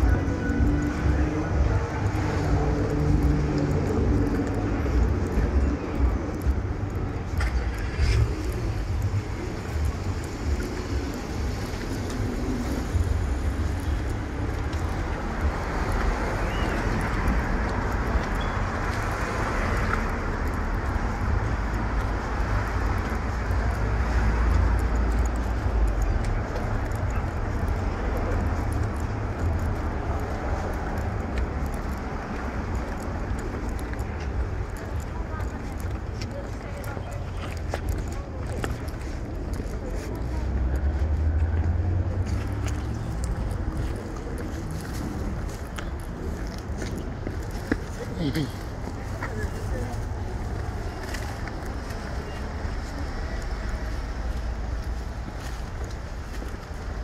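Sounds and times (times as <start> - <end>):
street traffic rumble: 0.0 - 57.0.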